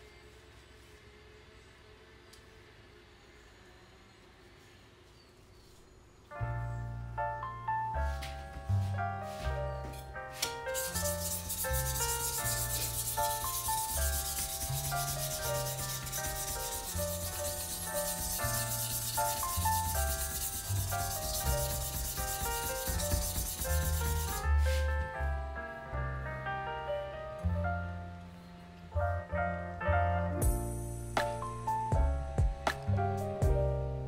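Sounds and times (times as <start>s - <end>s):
piano music: 6.3s - 34.0s
knife blade scraping on abrasive: 10.8s - 24.5s.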